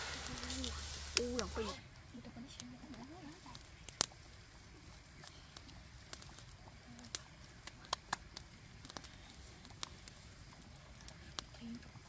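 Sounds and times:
faint low rumble: 0:00.0 - 0:12.0
wood fire crackling and popping: 0:00.0 - 0:12.0.

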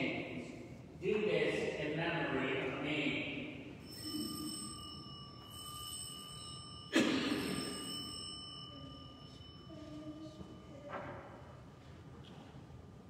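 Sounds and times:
bell ringing: 0:03.6 - 0:11.7.

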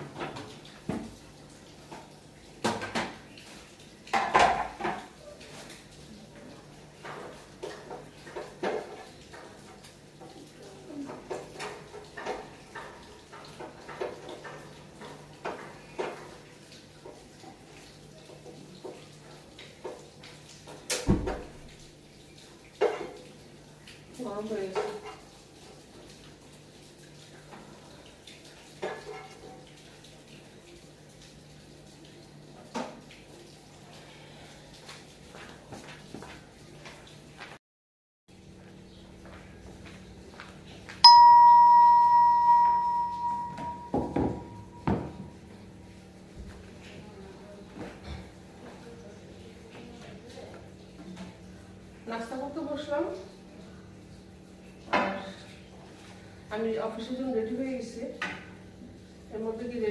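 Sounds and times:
bell-like ding: 0:41.0 - 0:44.7
low steady hum: 0:41.0 - 0:44.8.

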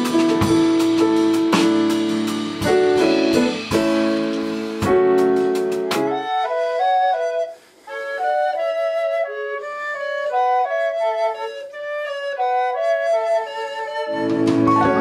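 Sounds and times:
low accompaniment: 0:00.0 - 0:06.7, 0:13.9 - 0:15.0
flute playing: 0:05.8 - 0:15.0
recorder playing: 0:05.9 - 0:15.0.

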